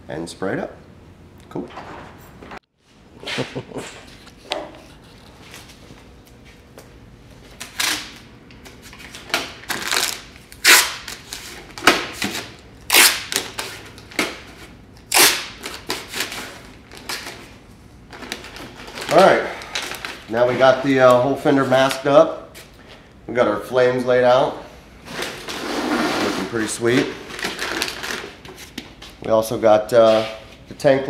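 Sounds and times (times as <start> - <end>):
masking tape ripping off roll: 7.6 - 8.2, 9.7 - 11.5, 12.4 - 13.6, 15.1 - 16.3.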